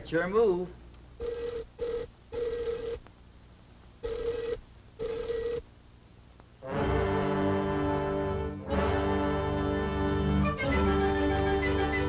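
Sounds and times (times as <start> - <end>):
telephone bell ringing: 1.2 - 3.0, 4.0 - 5.6
music: 6.6 - 12.0.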